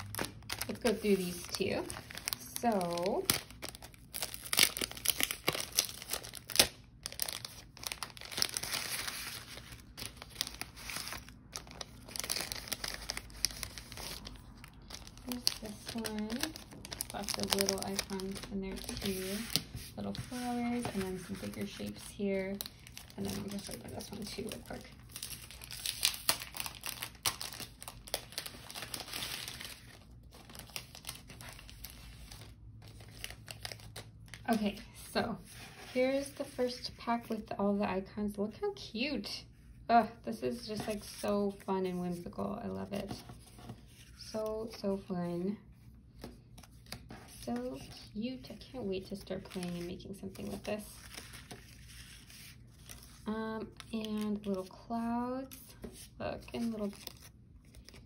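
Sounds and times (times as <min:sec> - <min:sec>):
plastic bag crinkling: 0:00.0 - 0:34.9.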